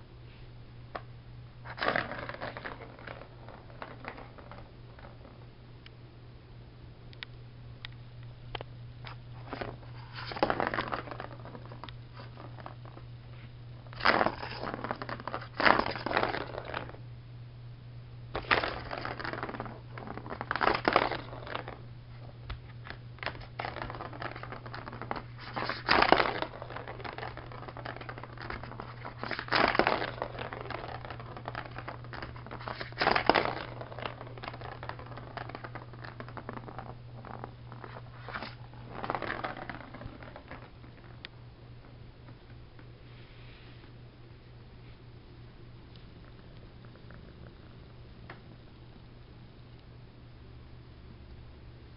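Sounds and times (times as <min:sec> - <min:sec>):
steady low hum: 0:00.0 - 0:51.9
cat scratching toy: 0:22.8 - 0:40.7.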